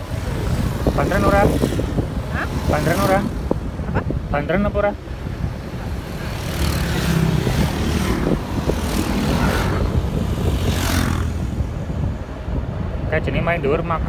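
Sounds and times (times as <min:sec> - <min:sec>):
motorbikes passing whoosh: 0:00.0 - 0:13.2
road and wind noise: 0:00.0 - 0:14.0.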